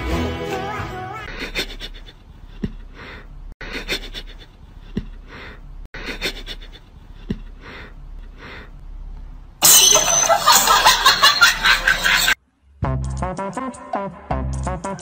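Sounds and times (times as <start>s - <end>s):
crashing shattering noise: 9.6s - 11.9s.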